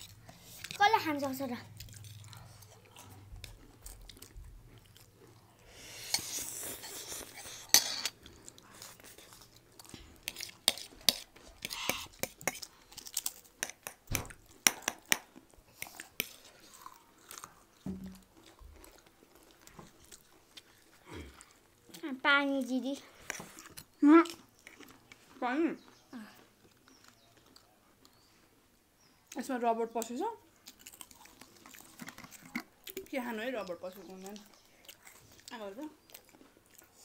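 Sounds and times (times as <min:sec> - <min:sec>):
biscuits crunching: 0:00.0 - 0:22.2, 0:23.0 - 0:28.6, 0:29.2 - 0:37.0
chewing: 0:00.0 - 0:22.2, 0:22.9 - 0:37.0
fork clinking on a plate: 0:07.7 - 0:08.2.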